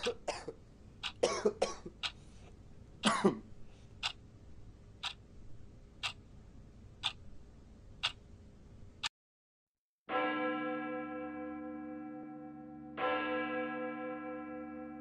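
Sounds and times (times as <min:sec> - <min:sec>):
clock ticking: 0:00.0 - 0:00.4, 0:01.0 - 0:02.2, 0:04.0 - 0:04.2, 0:05.0 - 0:05.2, 0:06.0 - 0:06.2, 0:07.0 - 0:07.3, 0:08.0 - 0:08.2
person coughing: 0:00.0 - 0:00.6, 0:01.2 - 0:02.0, 0:03.0 - 0:03.5.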